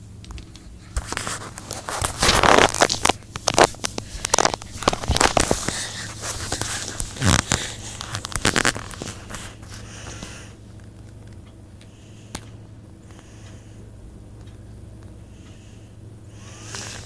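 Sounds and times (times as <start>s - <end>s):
handling noise: 0.3s - 11.4s
paper rustling: 0.5s - 10.4s.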